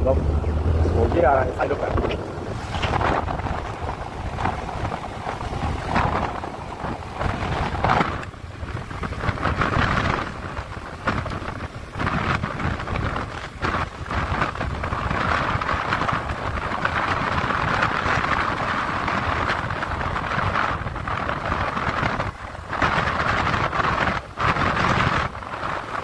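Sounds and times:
rumbling road noise: 0.0 - 26.0
wind buffeting microphone: 0.0 - 26.0.

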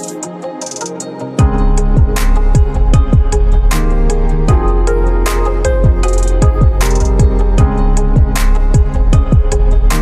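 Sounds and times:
electronic music with steady beat: 0.0 - 10.0
deep kick drums: 1.4 - 3.9, 4.5 - 4.9, 5.7 - 10.0.

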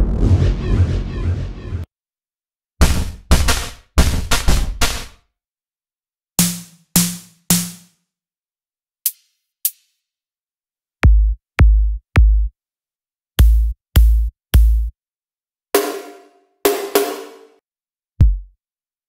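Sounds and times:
deep kick drums: 2.8 - 5.0, 11.0 - 12.5, 13.4 - 14.9, 18.2 - 18.5
synthesized snare hits: 2.8 - 5.2.

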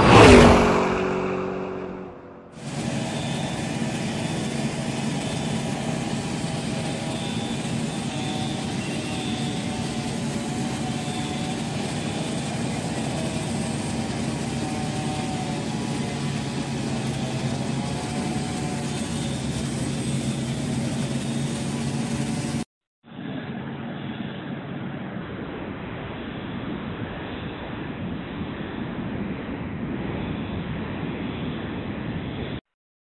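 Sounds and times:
fire truck engines idling: 2.6 - 22.6.

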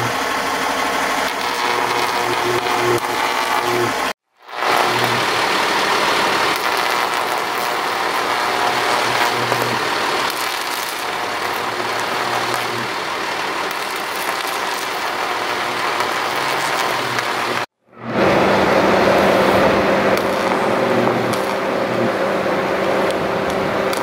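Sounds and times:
fire engine idling: 0.0 - 2.0, 5.2 - 9.0, 9.8 - 14.8, 18.1 - 24.0.

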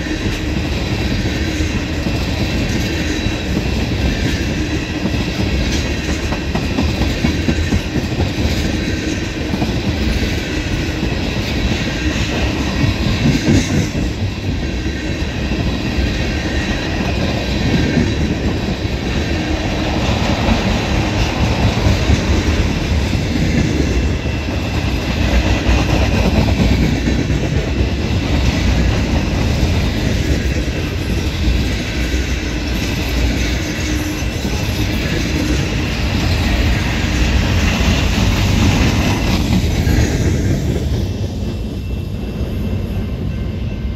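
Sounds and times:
clickety-clack over rail joints: 0.0 - 43.0
train wheels rumbling on rail: 0.0 - 43.9.

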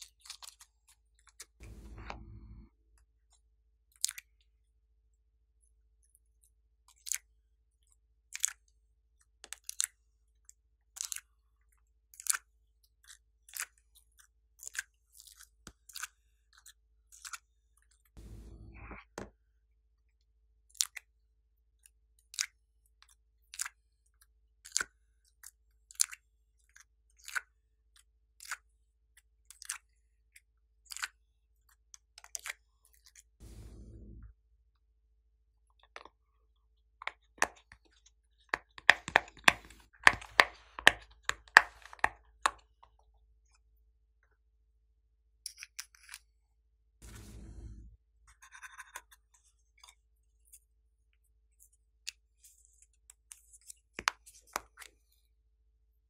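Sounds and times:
brief low rush: 18.2 - 18.9, 33.4 - 34.3, 47.0 - 48.0.

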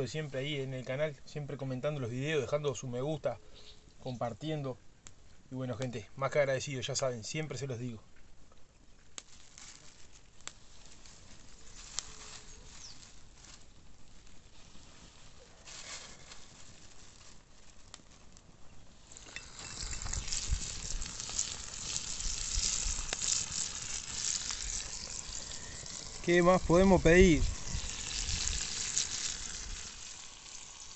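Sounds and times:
fish sizzling in hot oil: 18.9 - 30.9.

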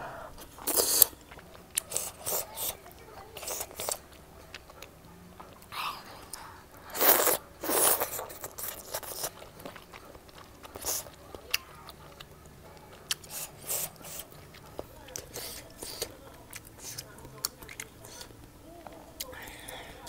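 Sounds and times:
chewing clicks and smacks: 8.0 - 19.8.

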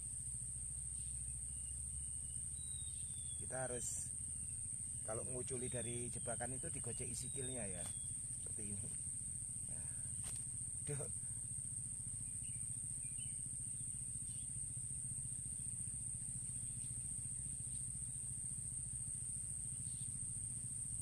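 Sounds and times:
high-pitched insect drone: 0.0 - 21.0
low steady rumble: 0.0 - 21.0.

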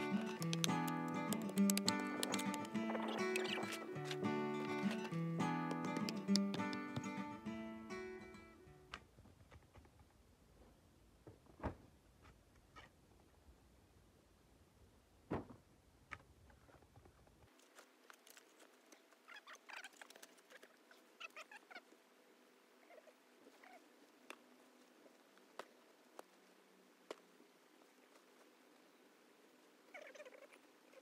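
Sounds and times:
spade scraping soil and stones: 0.0 - 7.2.

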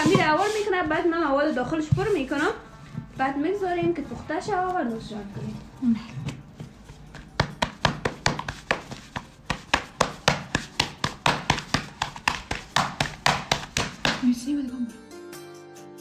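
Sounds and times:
knife chopping on wooden board: 7.1 - 14.2.

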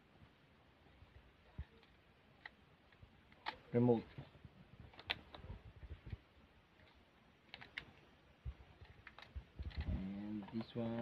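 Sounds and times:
plastic parts clicking: 4.9 - 5.4, 6.8 - 8.0, 8.8 - 11.0.

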